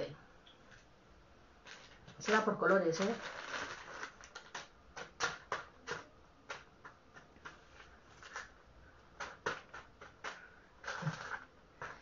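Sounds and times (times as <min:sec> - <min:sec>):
plastic sheet crinkling: 0:01.6 - 0:05.7.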